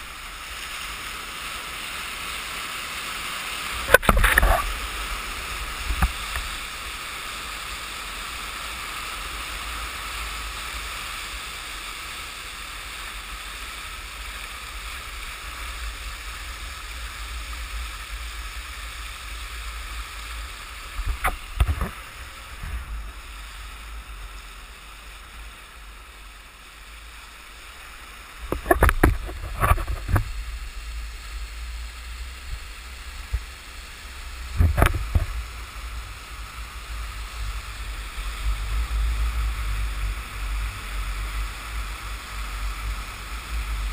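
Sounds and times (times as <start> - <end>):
water rushing and hissing: 0.0 - 43.9
splashes and knocks: 3.8 - 4.8, 21.0 - 22.9, 28.4 - 30.4, 34.5 - 35.4.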